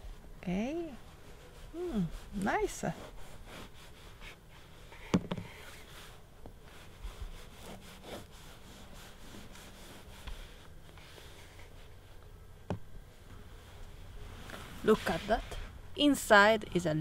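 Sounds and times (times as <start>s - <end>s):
knife sawing through bread: 1.8s - 4.5s, 7.2s - 10.3s.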